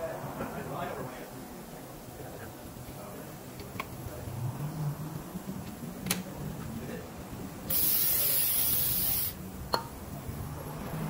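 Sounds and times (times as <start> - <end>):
pressurised spray hissing: 7.7 - 9.5.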